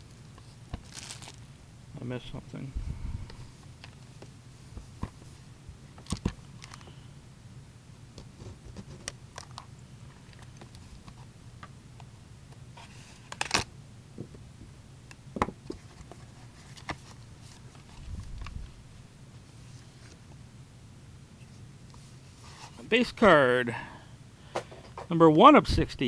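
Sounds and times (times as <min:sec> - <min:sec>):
low steady hum: 0:00.0 - 0:26.0
packaging rustling: 0:00.7 - 0:01.4.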